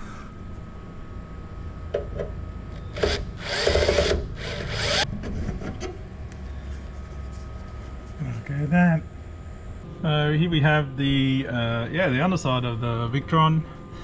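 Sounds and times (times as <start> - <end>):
cordless drill bursts: 2.8 - 5.0.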